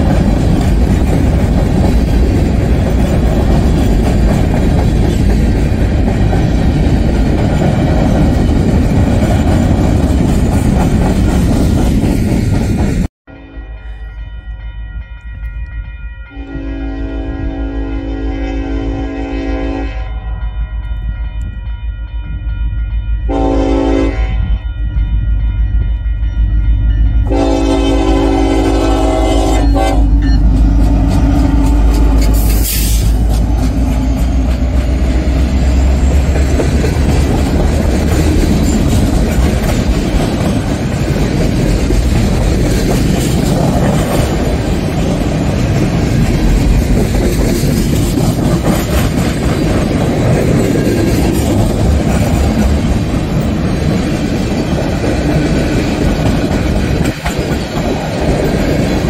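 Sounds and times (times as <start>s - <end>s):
train wheels clattering over rail joints: 0.0s - 13.1s, 29.8s - 59.0s
diesel locomotives rumbling: 0.0s - 59.0s
locomotive air horn: 13.3s - 14.1s, 16.3s - 20.4s, 23.3s - 24.6s, 27.3s - 30.3s.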